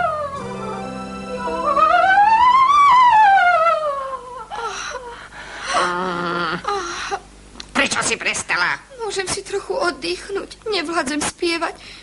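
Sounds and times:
held accompanying notes: 0.0s - 4.4s
soprano singing vocal scale: 0.0s - 4.6s.

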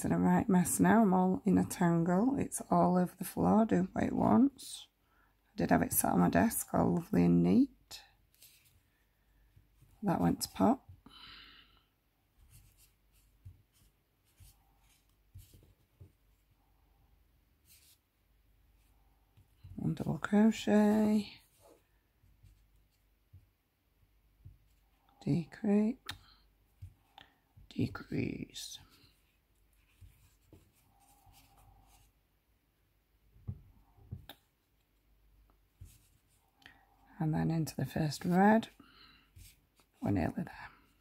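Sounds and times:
crochet hook rustling thread: 5.8s - 11.1s, 12.2s - 32.3s, 33.2s - 41.0s
crochet hook scratching thread: 17.6s - 18.0s, 29.2s - 32.1s, 38.2s - 40.0s.

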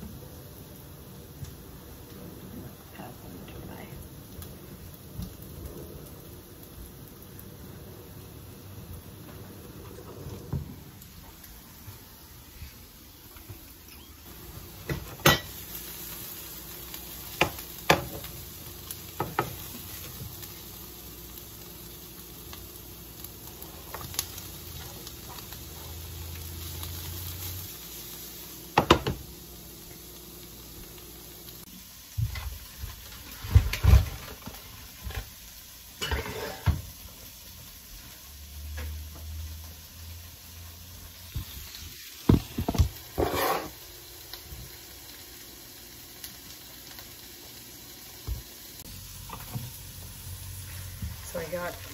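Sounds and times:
food sizzling in a frying pan: 0.0s - 51.9s
utensil clanking on pan: 14.9s - 15.6s, 36.0s - 36.8s.

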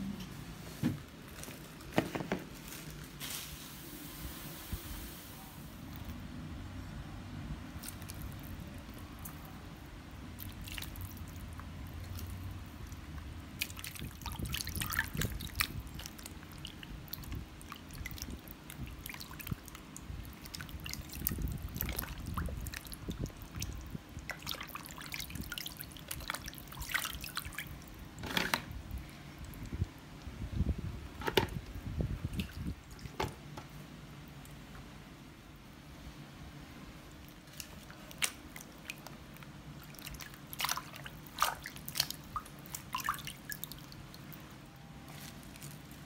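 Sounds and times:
low background hum: 0.0s - 46.0s
water splashing and dripping: 7.8s - 9.6s, 10.3s - 28.5s, 32.2s - 33.3s, 37.2s - 44.5s.

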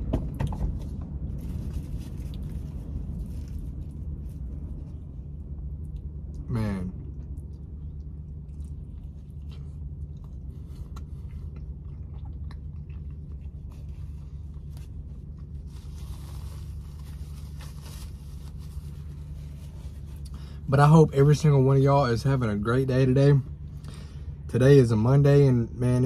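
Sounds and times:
low hum: 0.0s - 26.0s
person chewing a sandwich: 0.4s - 20.6s
paper napkin rustling: 13.7s - 20.2s.

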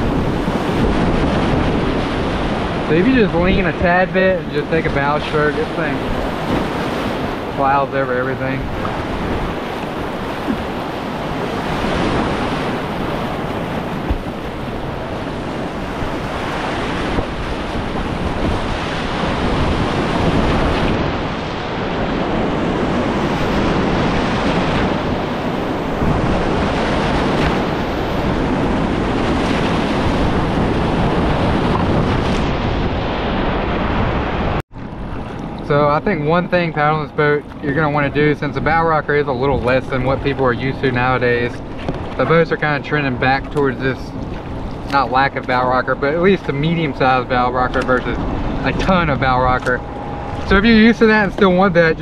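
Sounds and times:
wind buffeting microphone: 0.0s - 52.0s
whitewater rapids rushing: 44.9s - 52.0s.

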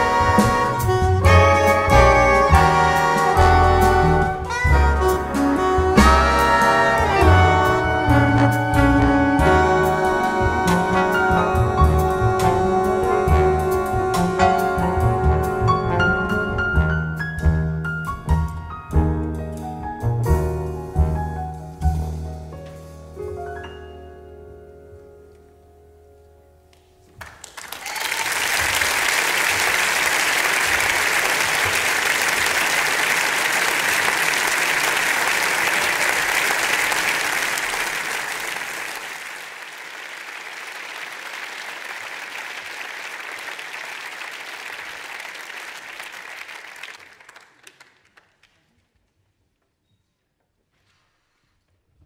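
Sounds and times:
big band chord: 0.0s - 22.8s
audience applauding: 27.2s - 48.7s.

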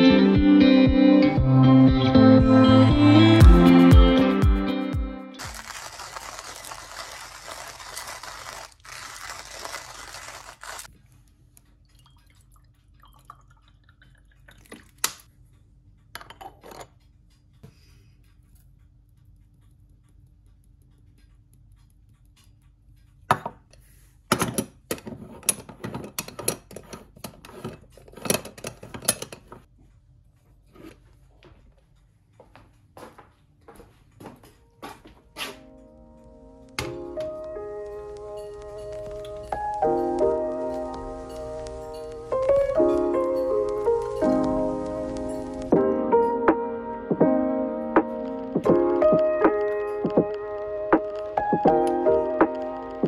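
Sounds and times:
hand coffee grinder grinding: 5.4s - 10.9s.

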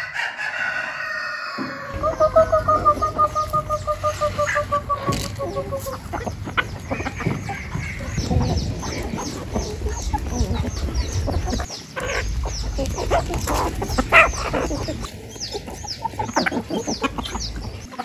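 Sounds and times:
chicken long call: 0.0s - 8.5s
chickens clucking: 0.0s - 18.0s.

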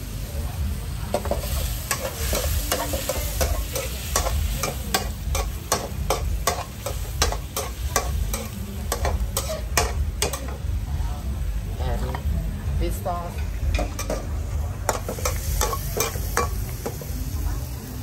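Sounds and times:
food sizzling in a pan: 0.0s - 18.0s
metal spatula scraping a wok: 1.2s - 10.6s.

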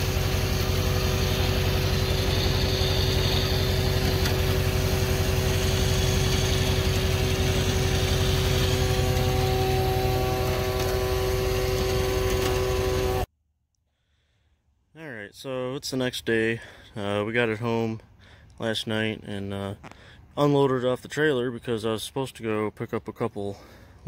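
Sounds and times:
vehicle engine idling: 0.0s - 13.3s.

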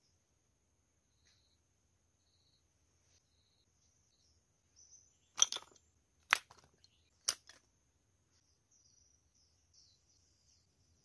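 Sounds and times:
insects chirping: 0.9s - 6.0s
birds chirping: 2.2s - 7.6s, 8.3s - 11.0s.

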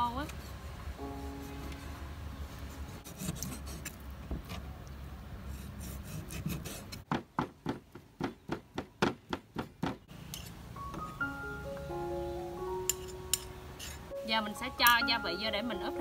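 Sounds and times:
cleaver scraping on wooden board: 2.6s - 4.6s, 5.5s - 7.1s.

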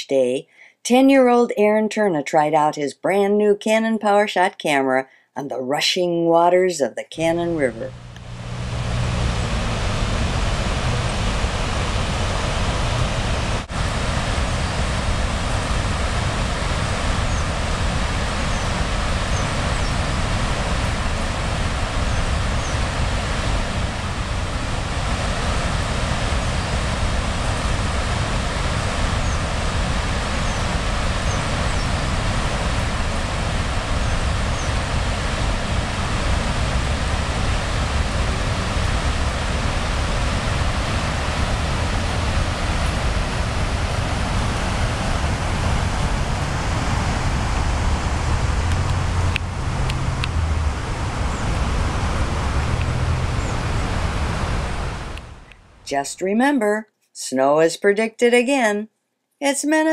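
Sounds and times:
river rushing through rapids: 8.0s - 55.4s.

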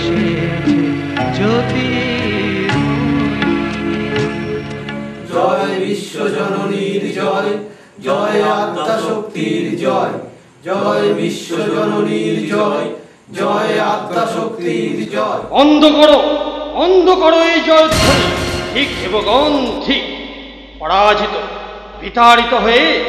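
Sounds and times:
held instrumental chord: 0.0s - 5.6s, 17.9s - 20.1s
chorus singing a hymn: 5.2s - 15.6s.

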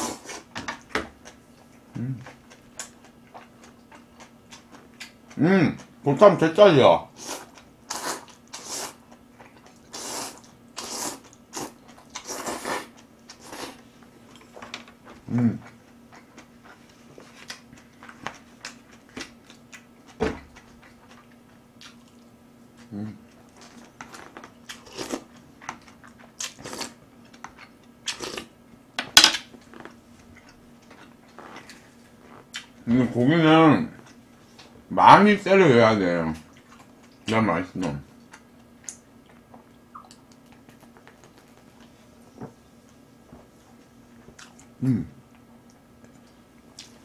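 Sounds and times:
chewing: 1.2s - 5.9s, 7.4s - 28.5s, 29.6s - 32.8s, 43.6s - 47.0s
person slurping noodles: 9.9s - 13.8s.

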